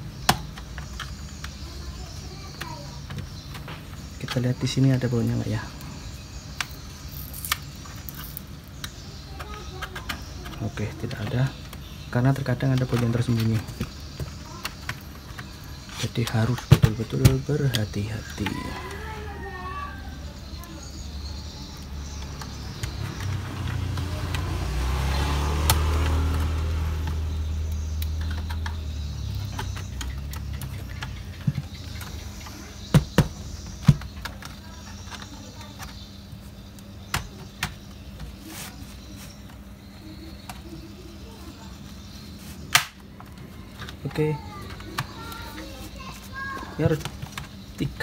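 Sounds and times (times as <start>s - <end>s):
plastic case clicks and knocks: 12.6s - 18.6s, 28.1s - 36.0s.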